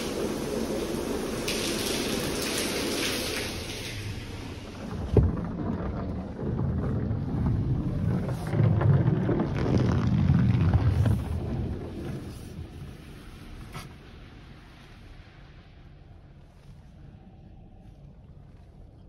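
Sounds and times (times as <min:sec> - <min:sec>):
car wash water spray: 0:00.0 - 0:04.8.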